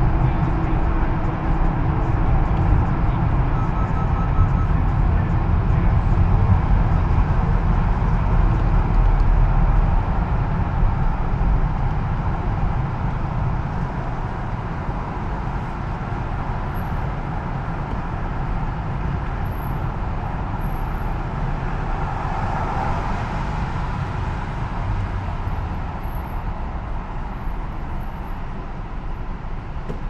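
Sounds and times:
road and tyre noise in tunnel: 0.0 - 30.0
car passing close: 19.9 - 28.0.

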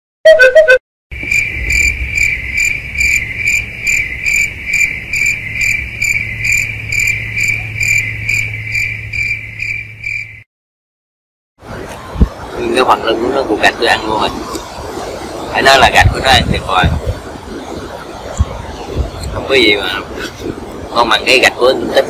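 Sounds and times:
high insect-like chirping: 1.2 - 10.4
low hum: 1.2 - 10.4.

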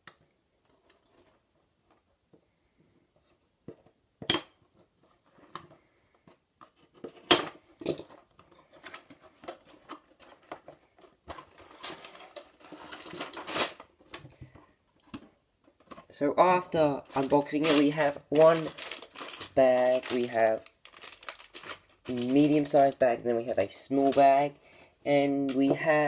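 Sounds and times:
plastic bags rustling: 8.6 - 14.8, 15.8 - 26.0.

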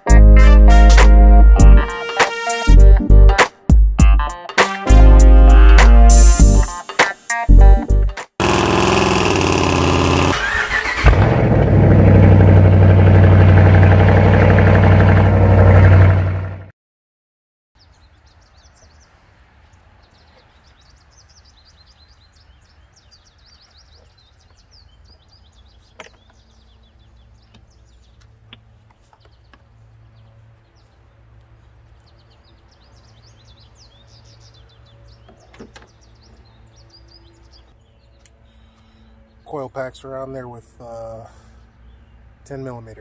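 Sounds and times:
small birds chirping: 17.8 - 43.0.

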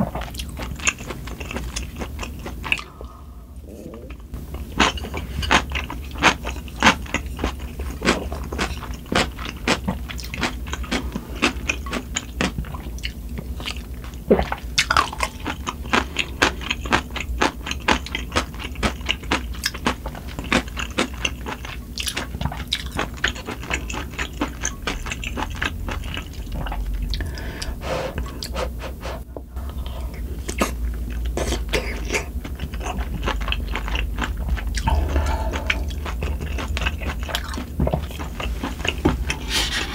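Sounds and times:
close chewing and biting: 0.0 - 3.0, 3.7 - 28.6, 29.6 - 39.9
low hum of wind and rain: 29.2 - 39.9.

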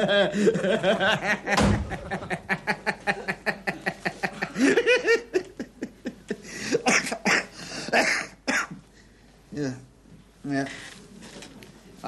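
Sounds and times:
studio audience laughing: 0.0 - 6.4.

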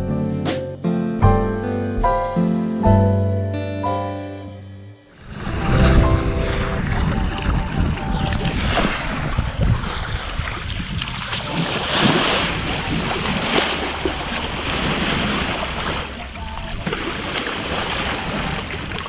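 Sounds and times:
sea water rushing and splashing: 5.1 - 19.0
wind buffeting microphone: 5.2 - 19.0.

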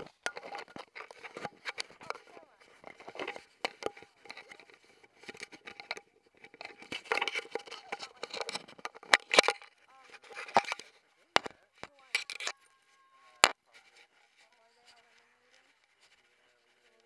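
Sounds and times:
clicks crinkling and rustling: 0.0 - 12.7.

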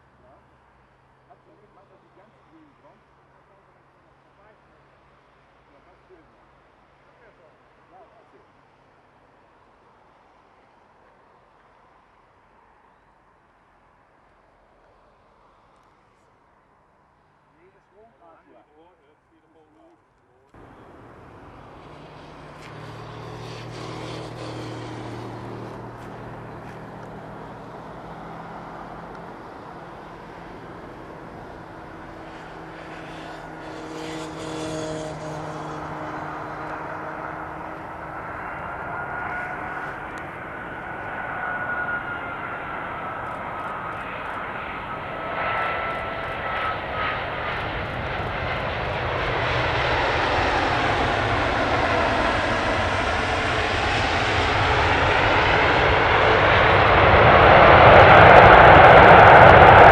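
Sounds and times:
jet engines on landing: 17.6 - 59.9
high engine whine: 20.5 - 59.9.

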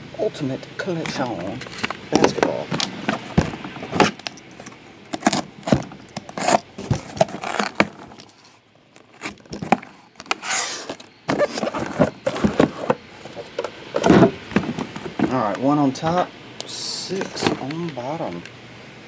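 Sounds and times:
cardboard flap rustling: 1.1 - 8.3, 9.0 - 15.4
cardboard knocks and scrapes: 1.7 - 4.2, 5.2 - 8.1, 9.2 - 13.4, 14.0 - 15.4.

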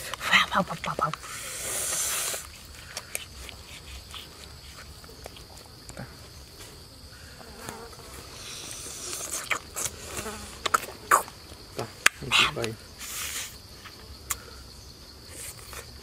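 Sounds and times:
high-pitched insect buzz: 1.1 - 4.9, 7.4 - 11.5, 12.2 - 16.0.

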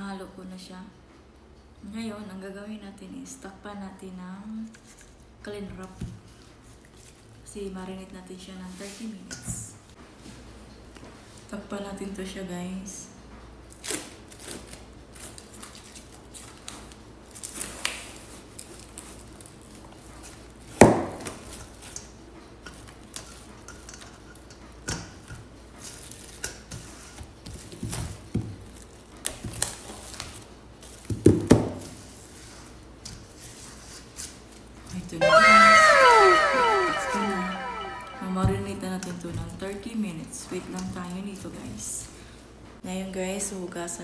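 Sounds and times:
plastic cling wrap crinkling: 13.7 - 20.7, 28.6 - 31.1.

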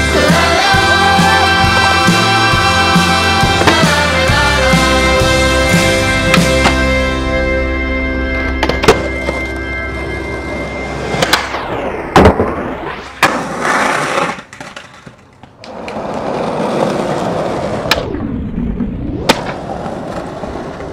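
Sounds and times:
skateboard wheels rolling on pavement: 8.6 - 18.1, 19.2 - 20.9
skateboard clacks: 13.2 - 18.0.

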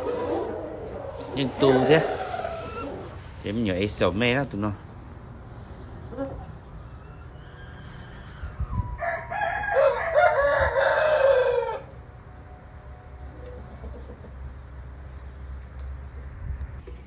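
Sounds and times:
rooster crowing: 0.0 - 3.2, 6.8 - 12.2.

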